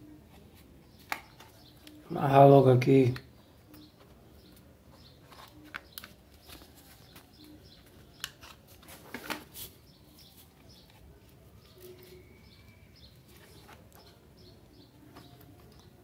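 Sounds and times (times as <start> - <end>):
faint bird chirps: 3.4 - 8.5, 9.7 - 16.0.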